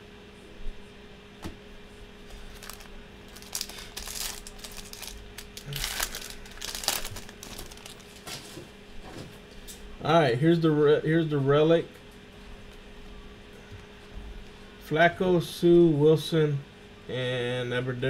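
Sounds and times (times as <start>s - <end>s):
plastic wrapper crinkling: 2.3s - 8.5s.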